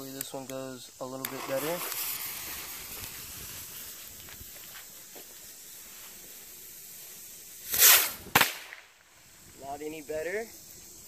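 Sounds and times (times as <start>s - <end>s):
fuse hissing: 0.0s - 11.0s
rocket whoosh: 7.6s - 8.8s
sharp pop: 7.7s - 8.9s.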